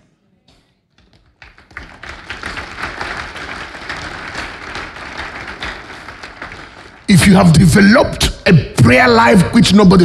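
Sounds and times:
congregation applauding: 1.2 - 7.8.

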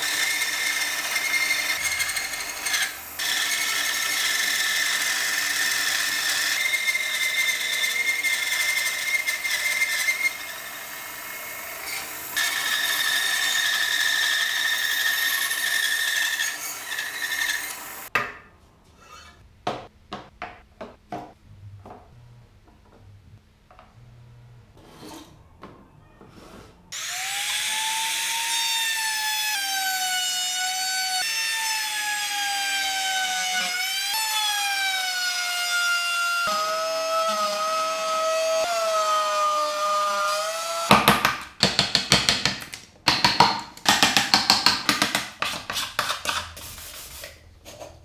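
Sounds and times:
trim router whining: 27.0 - 29.1
wooden pieces knocking: 40.9 - 46.3
sandpaper rubbing on wood: 45.4 - 47.4.

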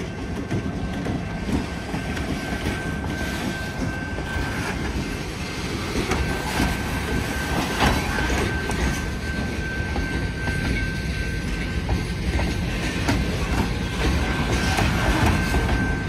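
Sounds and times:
train wheels rumbling on rails: 0.0 - 16.0
high-pitched wheel squeal: 13.2 - 16.0.

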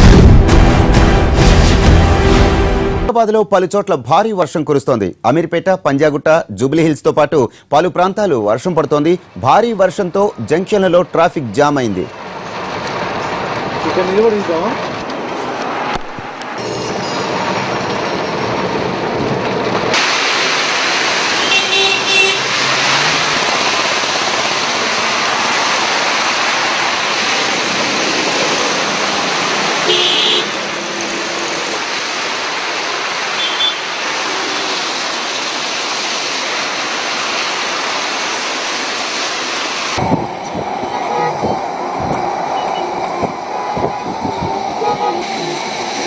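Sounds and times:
rain and tyre spray hiss: 8.9 - 46.0
vehicle horns tooting: 16.6 - 17.4, 21.4 - 22.6, 29.8 - 30.6, 33.3 - 33.9, 41.0 - 41.6, 44.8 - 45.5.

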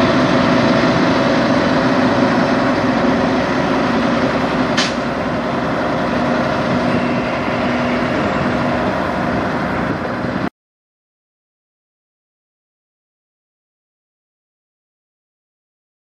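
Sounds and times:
diesel truck engine running: 0.0 - 10.5.

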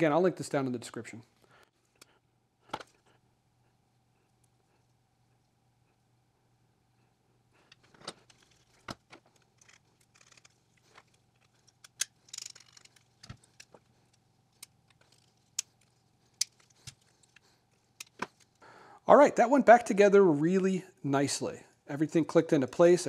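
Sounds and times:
plastic parts clicking and snapping: 7.6 - 18.6.

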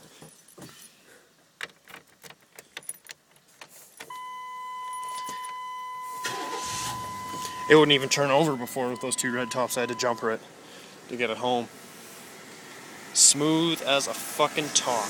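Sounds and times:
key ring jangling: 1.8 - 4.2, 4.8 - 5.6
electronic warning tone: 4.1 - 10.3.

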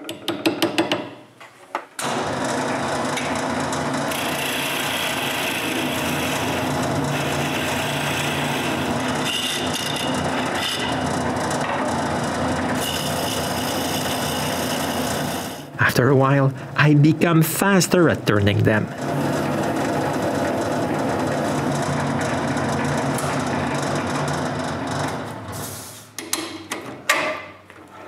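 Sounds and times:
turning tool cutting wood: 2.0 - 15.7, 18.0 - 25.4
wood lathe running: 2.0 - 16.4, 17.2 - 25.5.

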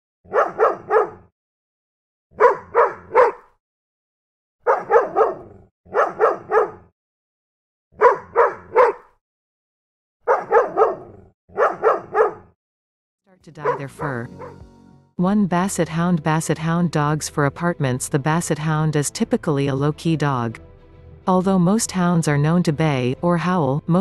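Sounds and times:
dog barking: 0.3 - 1.3, 2.3 - 3.6, 4.6 - 6.9, 8.0 - 9.2, 10.2 - 12.6, 13.6 - 14.6.

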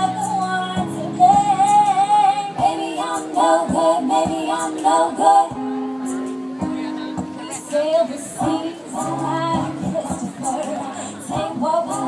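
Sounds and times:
keyboard: 0.0 - 12.0
woman singing pop song: 0.0 - 12.0.

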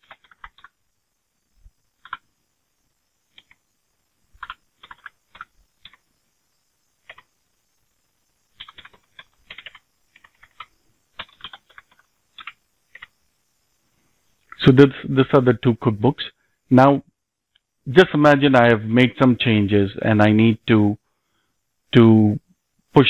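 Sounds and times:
keyboard typing: 0.0 - 0.8, 2.0 - 2.3, 3.3 - 3.7, 4.3 - 6.1, 7.0 - 7.3, 8.5 - 13.2.

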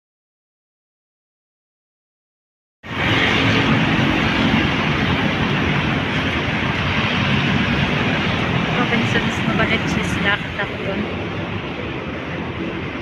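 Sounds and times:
road traffic: 2.8 - 13.0.

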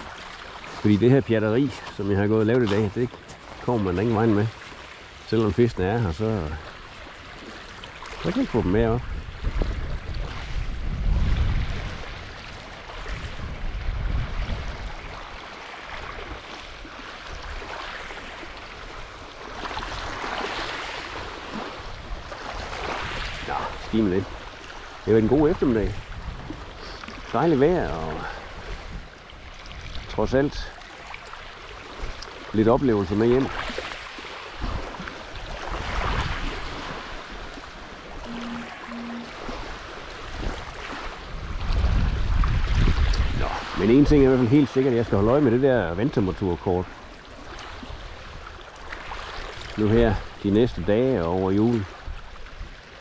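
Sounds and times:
small waves splashing: 0.0 - 53.0
water washing at shore: 0.0 - 53.0
wind buffeting microphone: 8.3 - 30.6, 34.6 - 38.3, 39.2 - 46.4
short low tones: 38.2 - 39.3.

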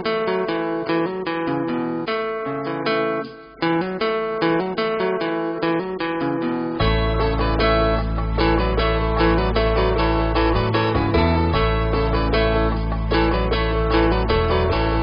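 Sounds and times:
plucked guitar melody: 0.0 - 15.0
low bass: 6.8 - 15.0.

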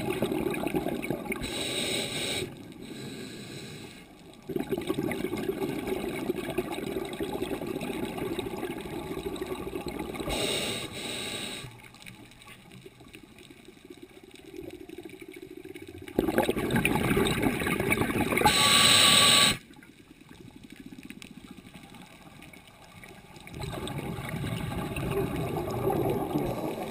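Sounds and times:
regulator hissing inhale: 1.4 - 4.2, 10.3 - 11.9, 18.5 - 19.6
bubbling exhalations underwater: 4.4 - 10.4, 14.6 - 18.7, 23.5 - 26.9.

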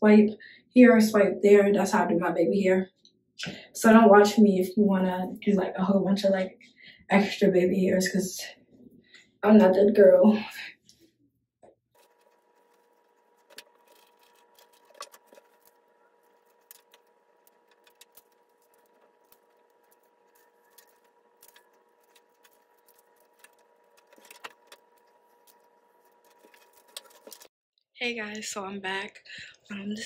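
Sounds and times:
flat iron clicking and sliding on hair: 12.0 - 27.5.

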